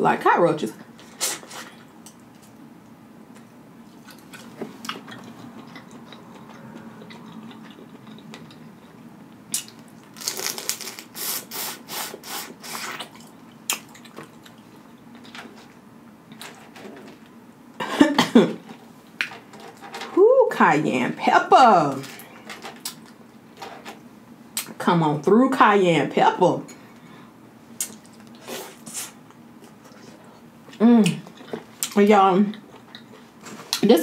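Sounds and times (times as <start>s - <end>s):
shells cracking and peeling: 9.5s - 11.0s.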